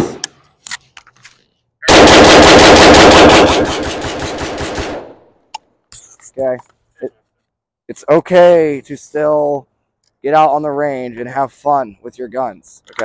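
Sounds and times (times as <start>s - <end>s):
rifle rapid gunfire: 1.9s - 5.2s.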